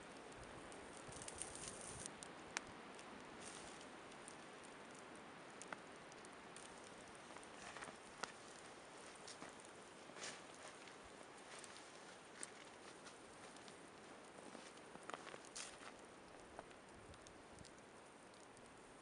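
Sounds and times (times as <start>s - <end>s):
campfire popping and hissing: 0.0s - 19.0s
rustling leaves underfoot: 0.8s - 2.2s, 3.4s - 3.9s, 7.4s - 16.0s.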